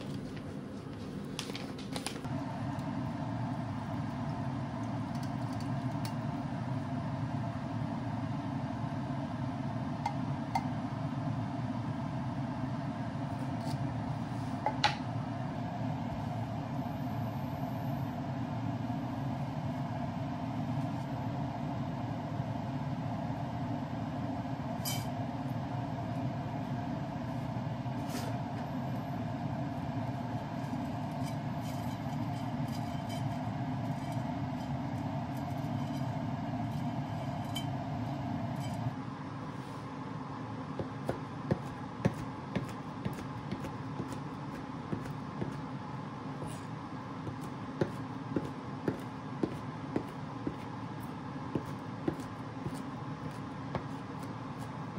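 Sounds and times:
water heating in pan rumble: 0:14.8 - 0:39.0.

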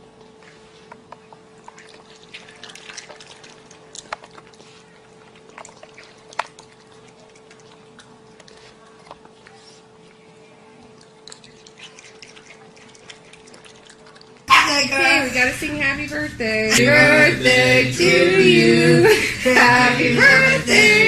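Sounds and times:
faint steady hum: 0:00.0 - 0:21.0
raccoon chewing: 0:01.6 - 0:09.9, 0:10.8 - 0:14.5.

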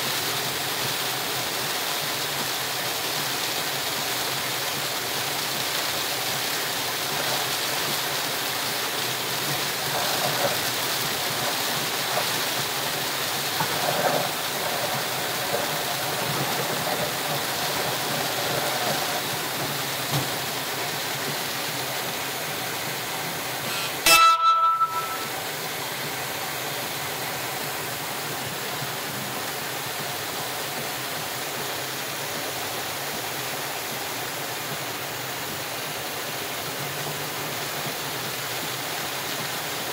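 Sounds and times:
heavy rain on a car: 0:00.0 - 0:24.1, 0:24.9 - 0:39.9
tyres on flooded road: 0:00.0 - 0:39.9
loud sharp ringing sound: 0:23.7 - 0:25.4.

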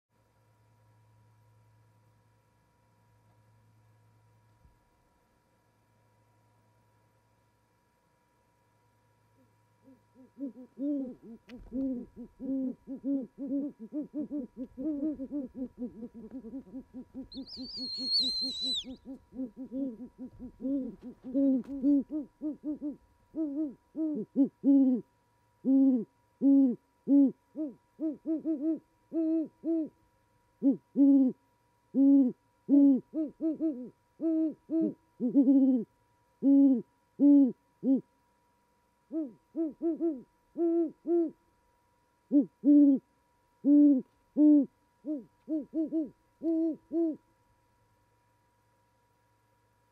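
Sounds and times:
owls hooting: 0:09.4 - 0:25.0, 0:25.6 - 0:30.0, 0:30.6 - 0:38.1, 0:39.1 - 0:41.4, 0:42.3 - 0:47.2.

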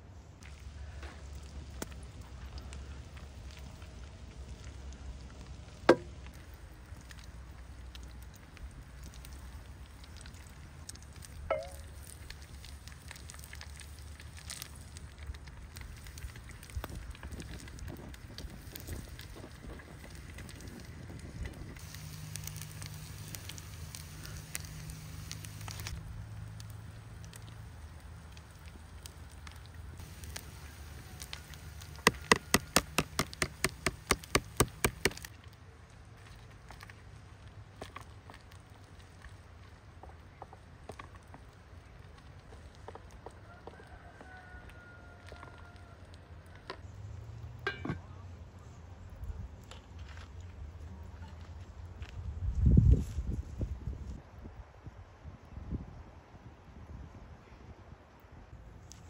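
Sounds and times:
fire crackling and popping: 0:00.3 - 0:47.8
knock with ringing tone: 0:11.5 - 0:11.8
sharp knocks: 0:32.0 - 0:35.2.

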